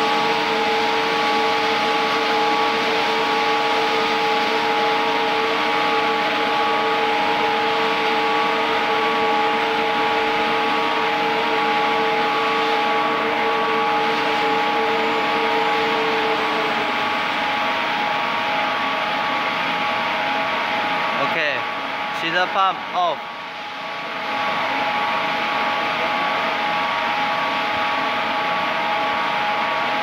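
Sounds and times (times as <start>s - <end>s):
machinery droning: 0.0s - 30.0s
machinery whining tones: 0.0s - 30.0s.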